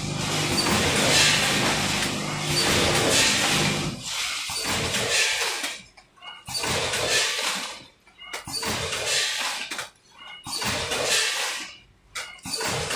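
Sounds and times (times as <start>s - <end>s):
packing machine hissing rush: 0.0s - 5.4s.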